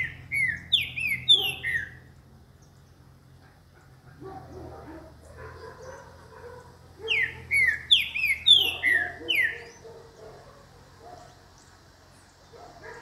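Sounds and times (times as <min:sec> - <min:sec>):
bird whistling song: 0:00.0 - 0:02.1, 0:07.0 - 0:09.8.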